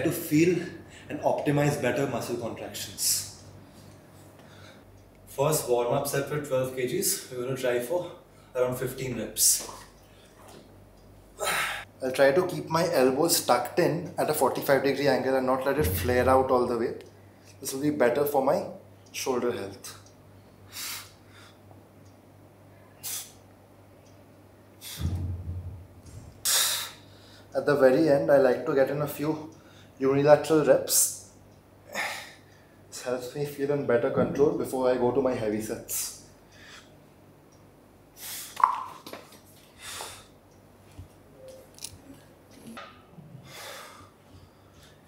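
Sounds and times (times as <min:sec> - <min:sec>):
dull low thump: 0:15.8 - 0:16.5, 0:25.0 - 0:26.4
man exhaling forcefully: 0:24.8 - 0:25.4
man breathing hard: 0:43.4 - 0:45.0.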